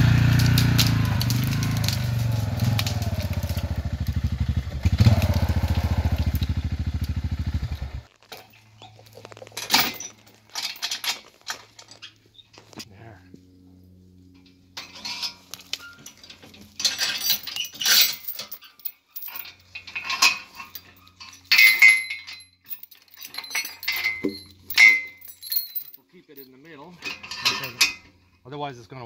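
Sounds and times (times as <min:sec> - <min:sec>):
metal chain rattling and clinking: 0:00.2 - 0:06.2, 0:08.3 - 0:12.2, 0:14.4 - 0:28.1
sharp metal chinks: 0:09.6 - 0:11.2, 0:14.8 - 0:28.1.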